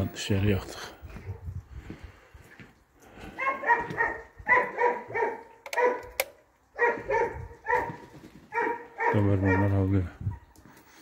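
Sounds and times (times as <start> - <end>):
dogs barking: 3.3 - 10.6
sharp clicks: 5.6 - 6.4.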